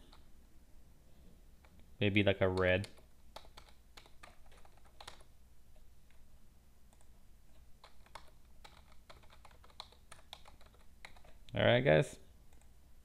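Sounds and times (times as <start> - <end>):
keyboard typing: 2.4 - 5.3, 6.9 - 11.5.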